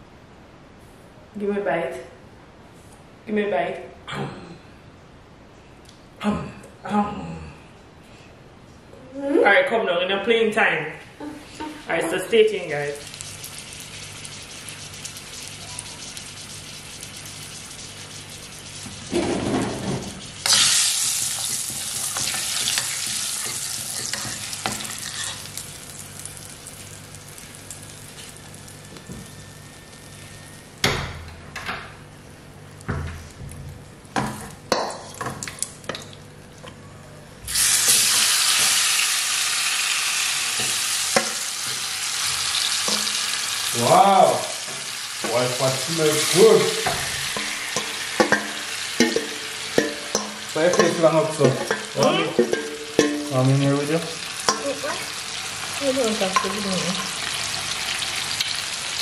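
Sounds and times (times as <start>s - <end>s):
oil sizzling: 11.4s - 30.7s, 37.5s - 59.0s.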